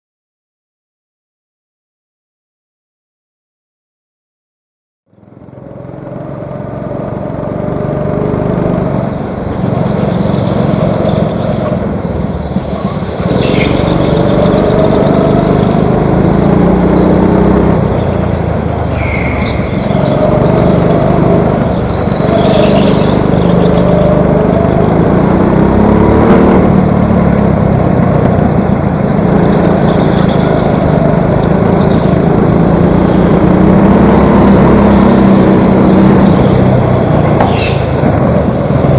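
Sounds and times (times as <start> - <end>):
go-kart engine: 5.1 - 38.9
other karts running: 5.2 - 38.9
high squeals: 9.4 - 26.5, 37.4 - 38.1.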